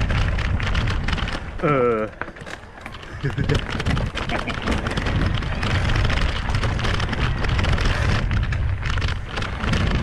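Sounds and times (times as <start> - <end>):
bike knocks and rattles: 0.0 - 10.0
bike tyres rumbling over dirt: 0.0 - 10.0
wind buffeting microphone: 0.0 - 10.0.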